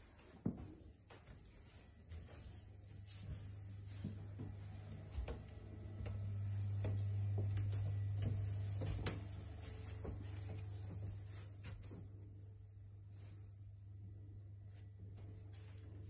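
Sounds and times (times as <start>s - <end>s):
footsteps on carpet: 0.0s - 12.2s
low steady hum: 0.0s - 16.0s.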